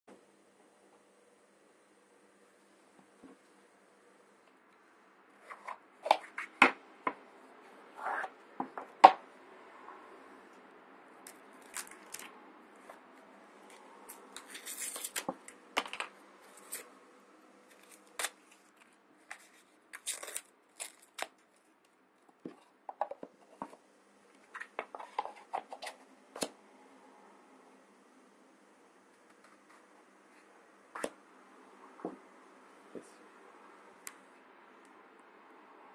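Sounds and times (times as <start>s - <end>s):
paper and foil rustling: 14.3s - 15.3s, 17.7s - 21.7s.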